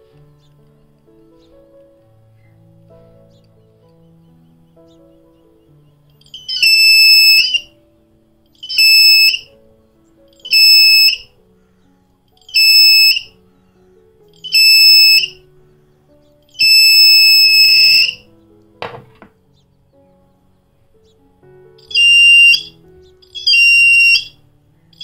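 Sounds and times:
high-pitched buzzer beeps: 0:06.4 - 0:07.6, 0:08.6 - 0:09.4, 0:10.5 - 0:11.2, 0:12.5 - 0:13.3, 0:14.5 - 0:15.4, 0:16.6 - 0:18.2, 0:21.9 - 0:22.7, 0:23.4 - 0:24.3.

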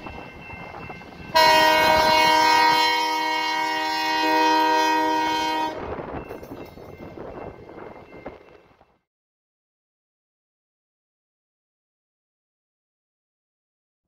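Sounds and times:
locomotive air horn chord: 0:01.3 - 0:05.9.

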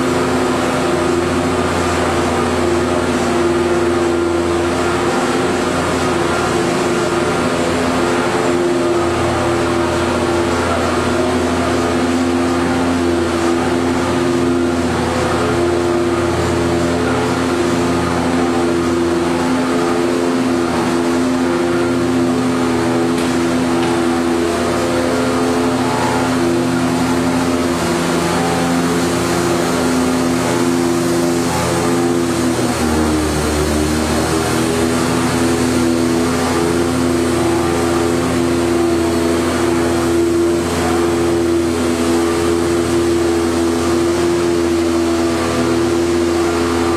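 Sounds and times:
production line machinery humming: 0:00.0 - 0:46.9.

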